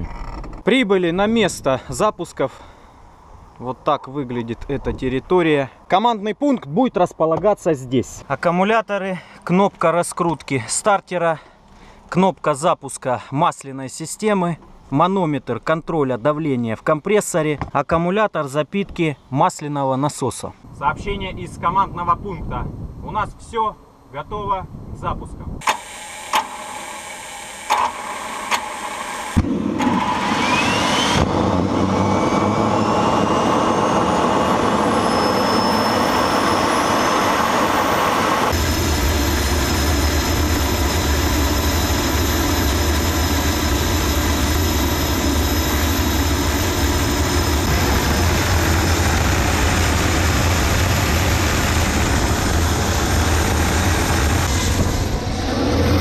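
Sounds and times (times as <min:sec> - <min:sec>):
deep steady turbine roar: 0:20.6 - 0:56.0
turbine starter rising whine: 0:25.6 - 0:56.0.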